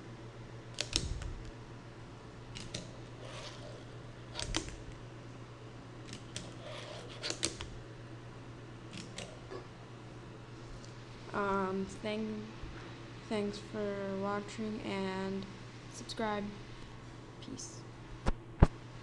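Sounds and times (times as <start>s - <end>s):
fingerboard clicks and clacks: 6.1s - 7.7s.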